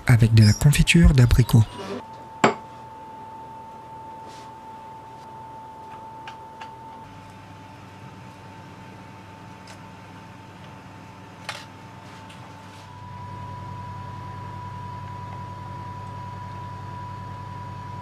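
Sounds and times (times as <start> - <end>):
faint high whine: 0.0 - 2.4
electrical hum: 0.0 - 18.0.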